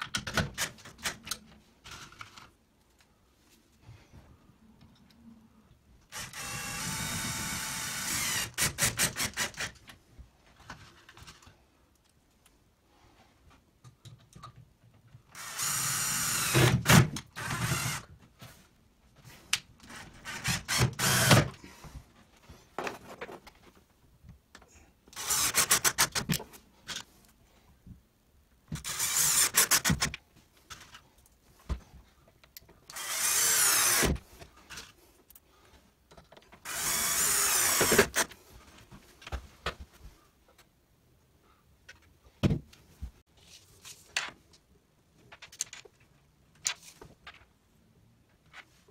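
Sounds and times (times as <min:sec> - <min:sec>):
cordless drill whining: 0:06.1 - 0:08.6, 0:15.4 - 0:16.7, 0:17.4 - 0:18.0, 0:20.4 - 0:21.5, 0:25.2 - 0:25.7, 0:28.8 - 0:29.9, 0:32.9 - 0:34.2, 0:36.6 - 0:38.3.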